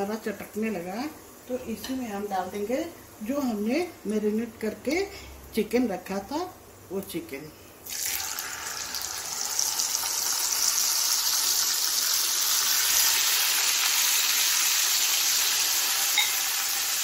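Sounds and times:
chicken sizzling in hot oil: 7.8s - 17.0s.

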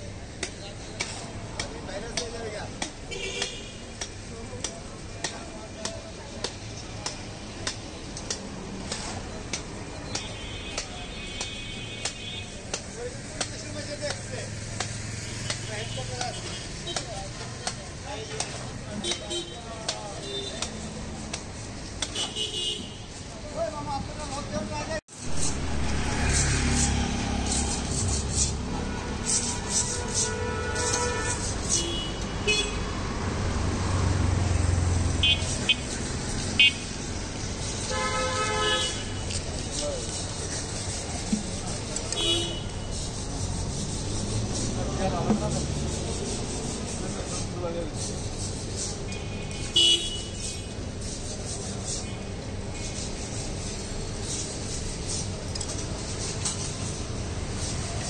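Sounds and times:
street and stall din: 0.0s - 58.0s
traffic rumble: 0.0s - 58.0s
car horns honking: 3.1s - 4.0s, 22.1s - 23.2s, 28.7s - 32.8s, 35.2s - 35.9s, 36.6s - 36.9s, 37.8s - 39.5s, 42.0s - 43.0s, 49.1s - 50.8s.

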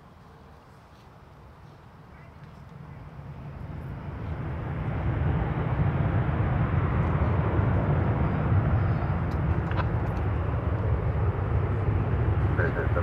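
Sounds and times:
jet engine roar at takeoff: 0.0s - 13.0s.

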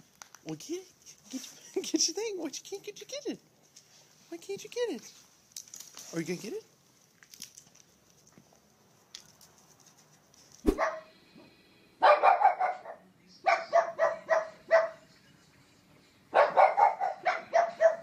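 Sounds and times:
dogs barking: 10.7s - 11.1s, 12.0s - 15.0s, 16.3s - 18.0s.

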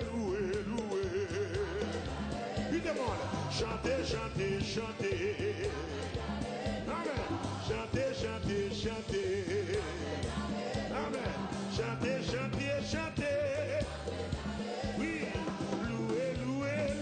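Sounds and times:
man singing into a microphone: 0.0s - 2.0s, 2.7s - 6.0s, 6.9s - 10.1s, 10.9s - 14.0s, 15.0s - 17.0s
gospel band with bass and drums: 0.0s - 17.0s.

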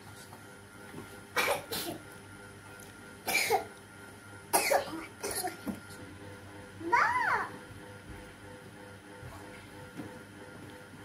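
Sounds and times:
child coughing: 1.4s - 2.0s, 3.3s - 3.7s, 4.5s - 5.7s.

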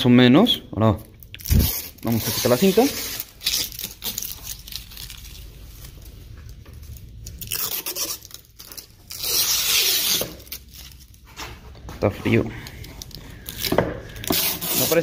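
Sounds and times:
tape ripping off panel: 1.4s - 6.0s, 7.2s - 11.2s, 13.4s - 15.0s.

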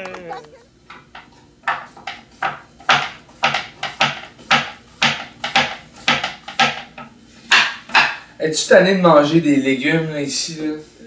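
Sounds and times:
knife chopping on wooden board: 1.6s - 8.2s.

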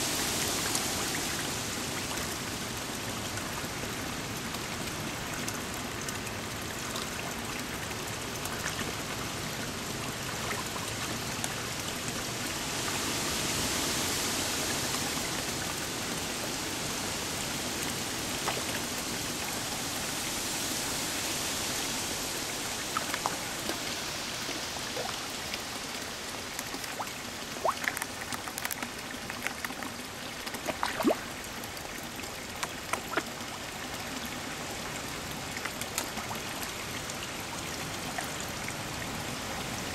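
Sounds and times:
running pond water: 0.0s - 39.9s
fish slurping and splashing: 18.2s - 34.0s.

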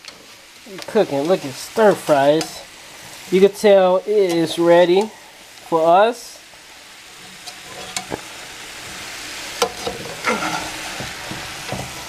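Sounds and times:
vegetables sizzling in skillet: 0.0s - 12.0s
metal spatula scraping pan: 7.1s - 8.2s, 9.6s - 12.0s.

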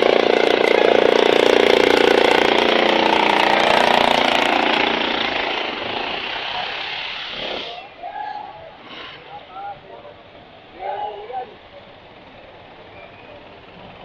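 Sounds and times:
vehicle engine buzzing: 0.0s - 7.8s.

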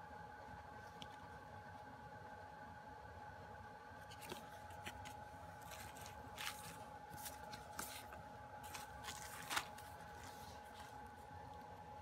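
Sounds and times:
hands rustling packaging: 4.1s - 11.8s.

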